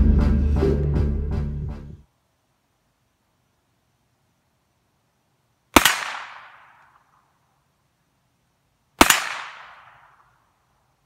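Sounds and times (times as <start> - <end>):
gunshot echoing: 5.8 - 7.1, 9.0 - 10.3.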